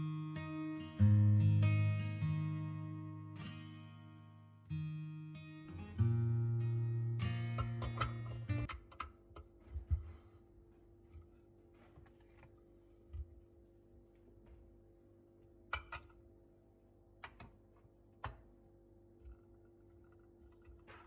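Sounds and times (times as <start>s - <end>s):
objects clicking on a countertop: 7.6s - 9.6s.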